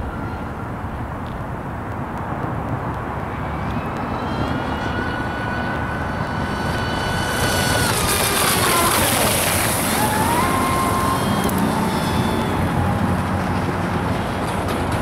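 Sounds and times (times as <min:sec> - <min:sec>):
model boat motor whining: 0:03.6 - 0:15.0.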